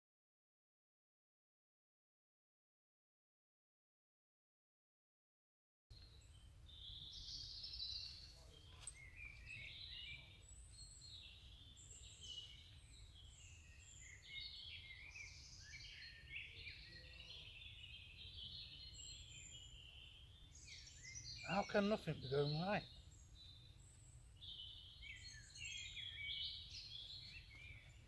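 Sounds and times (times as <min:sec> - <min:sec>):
birds chirping and warbling: 0:05.9 - 0:28.0.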